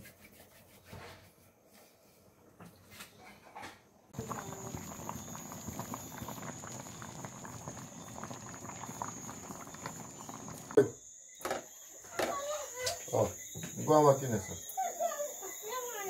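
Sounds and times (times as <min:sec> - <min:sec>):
soup boiling and bubbling: 0:04.1 - 0:11.6.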